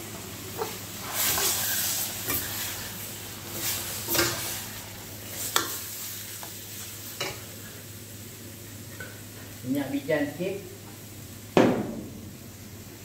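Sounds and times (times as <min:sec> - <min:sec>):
noodles sizzling in wok: 0:00.0 - 0:13.0
spatula scraping and knocking wok: 0:00.5 - 0:07.6.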